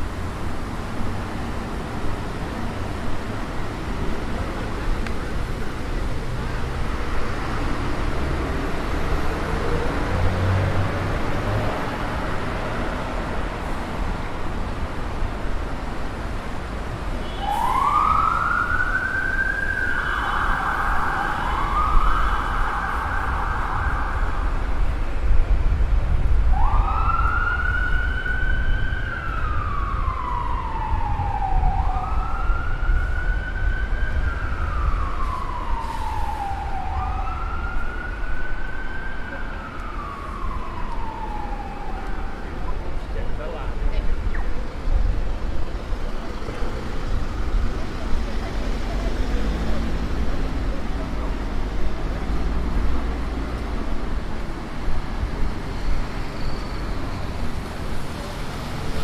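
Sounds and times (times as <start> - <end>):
traffic noise: 0.0 - 59.0
emergency siren wailing: 17.2 - 25.1, 26.4 - 43.4.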